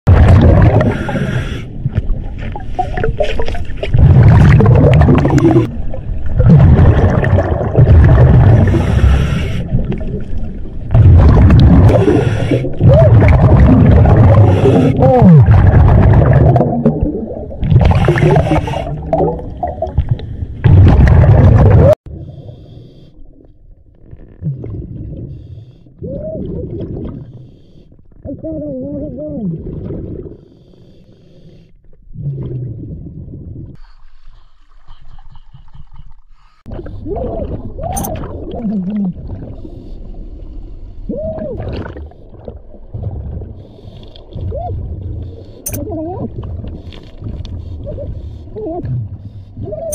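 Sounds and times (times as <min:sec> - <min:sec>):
muffled underwater gurgling rumble: 0:00.1 - 0:22.6, 0:34.9 - 0:49.9.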